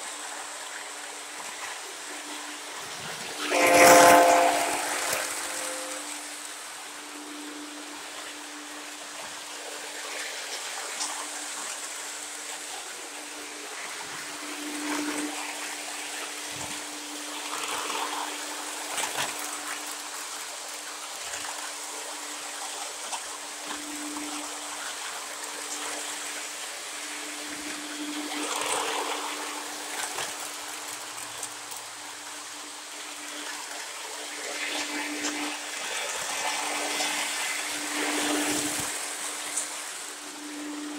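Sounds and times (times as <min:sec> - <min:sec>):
model trains rolling hiss: 0:00.0 - 0:40.9
wheels clicking on rail joints: 0:00.0 - 0:40.9
train motor hum: 0:02.1 - 0:08.0.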